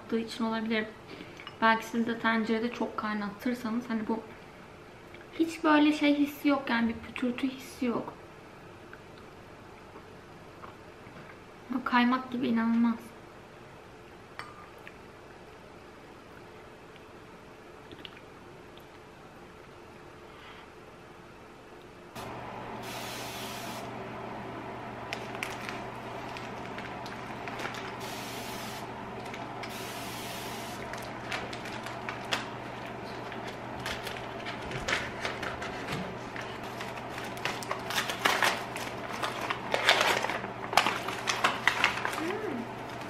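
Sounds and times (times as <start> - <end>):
crinkling and rustling: 25.0 - 28.1, 30.8 - 43.0
wrapping being torn: 25.1 - 28.0, 30.9 - 42.6.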